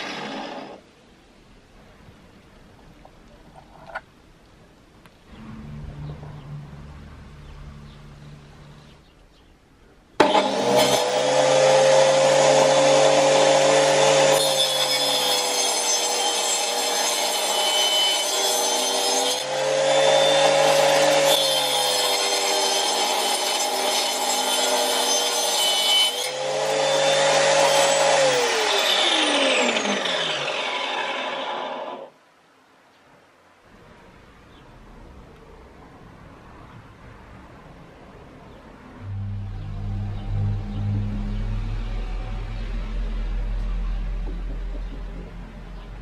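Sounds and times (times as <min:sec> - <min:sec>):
saw blade whining: 0:10.2 - 0:32.1, 0:39.0 - 0:45.8.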